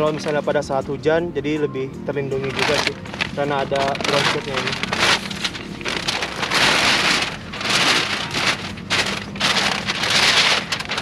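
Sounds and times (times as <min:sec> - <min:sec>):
ground sheet rustling and crinkling: 0:02.4 - 0:11.0.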